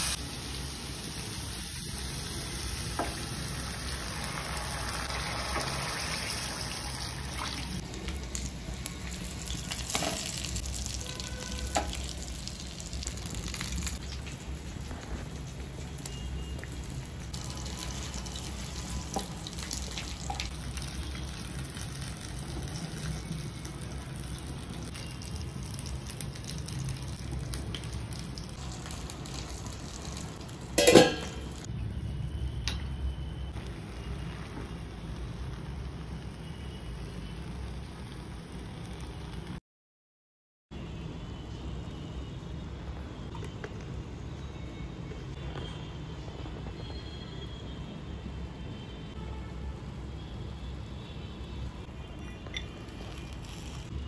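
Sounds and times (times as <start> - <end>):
broth simmering and bubbling: 0.2 - 39.6.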